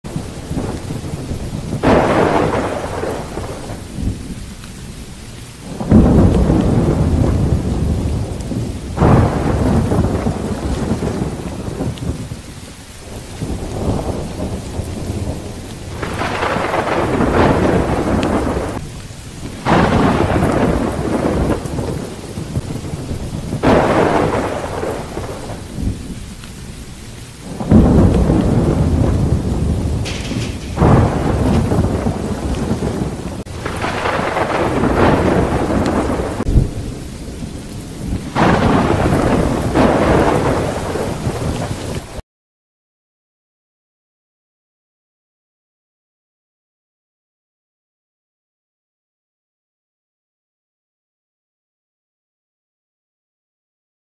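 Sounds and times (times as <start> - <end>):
rain falling: 0.0 - 42.2
thunder rumbling: 0.0 - 42.2.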